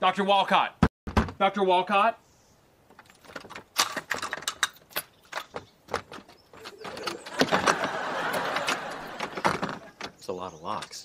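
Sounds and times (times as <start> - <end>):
door locks clicking: 3.2 - 10.2
audience laughter: 6.9 - 10.0.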